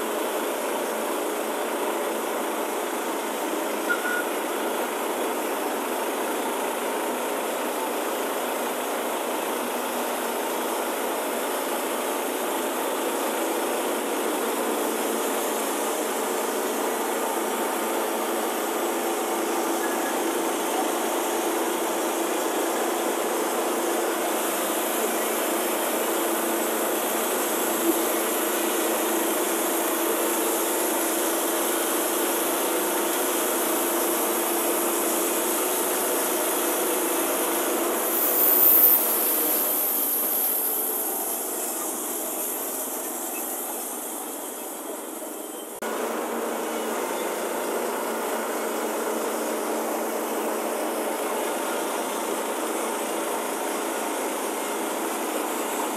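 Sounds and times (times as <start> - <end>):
high-pitched saw burst: 38.0 - 44.5.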